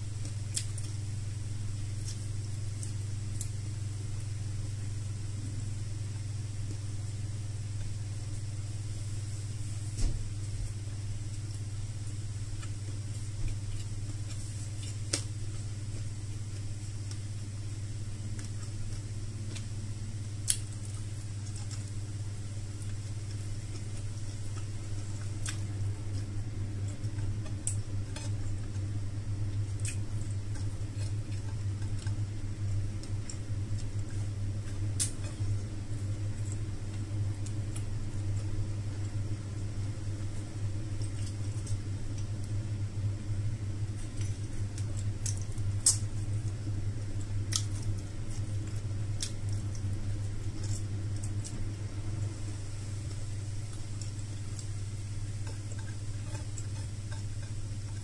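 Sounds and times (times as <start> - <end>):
chewing and mouth smacks: 0.2 - 1.1, 11.3 - 51.8, 53.0 - 58.0.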